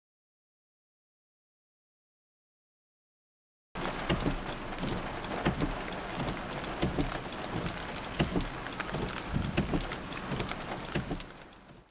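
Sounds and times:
steady hiss and low rumble: 3.8s - 11.8s
soft taps and crackles: 3.8s - 11.9s.

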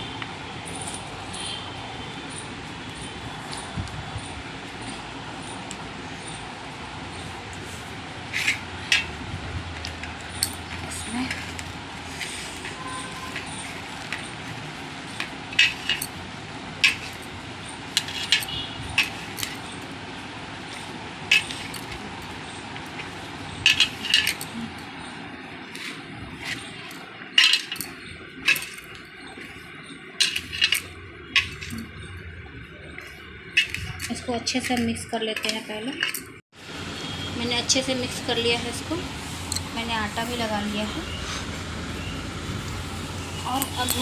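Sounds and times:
bangles clinking: 0.0s - 20.0s, 20.6s - 36.4s, 38.5s - 41.2s.

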